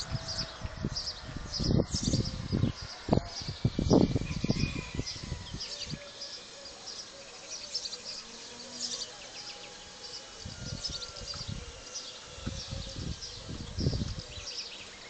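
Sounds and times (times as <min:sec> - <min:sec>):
wind on microphone: 0:00.0 - 0:06.1, 0:10.4 - 0:14.6
small birds chirping: 0:00.0 - 0:15.0.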